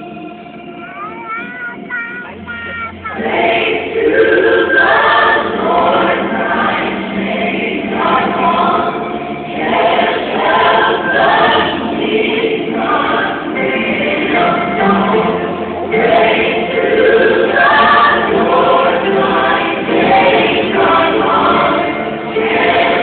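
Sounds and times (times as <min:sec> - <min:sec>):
choir singing: 0:00.0 - 0:00.8, 0:02.8 - 0:23.0.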